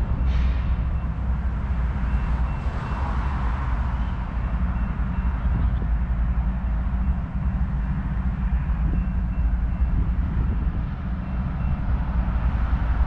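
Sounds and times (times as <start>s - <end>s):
distant road traffic hum: 0.0s - 13.0s
wind buffeting microphone: 4.2s - 13.0s.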